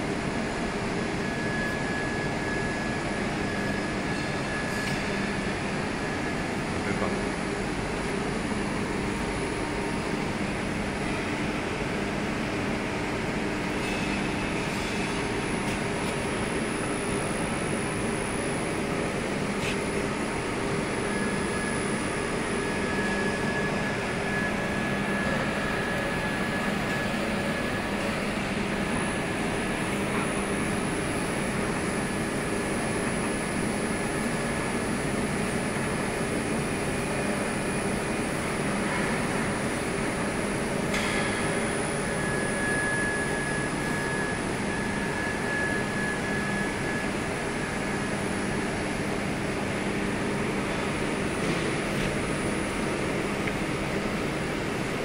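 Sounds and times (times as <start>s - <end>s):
industrial machinery humming: 0.0s - 55.0s
faint high whine: 41.6s - 51.0s.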